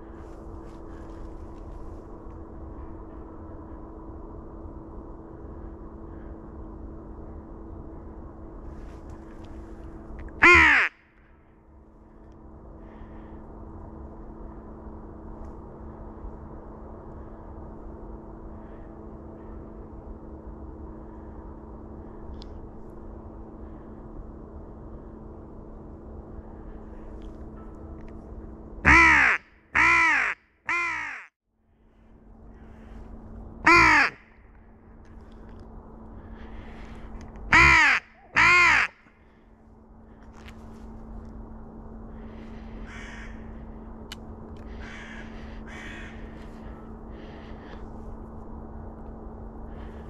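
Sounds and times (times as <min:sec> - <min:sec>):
faint low hum: 0:00.0 - 0:50.0
crow cawing: 0:10.4 - 0:11.0, 0:28.9 - 0:31.3, 0:33.7 - 0:34.3, 0:37.5 - 0:39.4, 0:42.8 - 0:43.7, 0:44.7 - 0:47.8.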